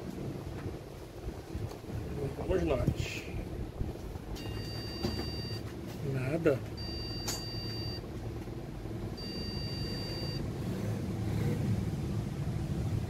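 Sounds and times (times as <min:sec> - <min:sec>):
steady low hum: 0:00.0 - 0:13.0
high-pitched computer beeps: 0:04.4 - 0:05.6, 0:06.8 - 0:08.0, 0:09.2 - 0:10.4.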